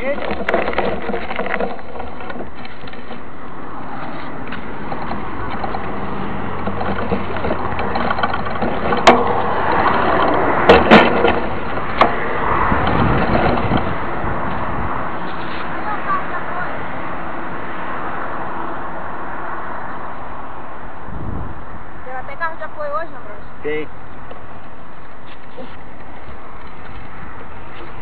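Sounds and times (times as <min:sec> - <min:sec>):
bike knocks and rattles: 0:00.0 - 0:16.1
tyre and wind rushing: 0:00.0 - 0:22.1, 0:23.9 - 0:28.0.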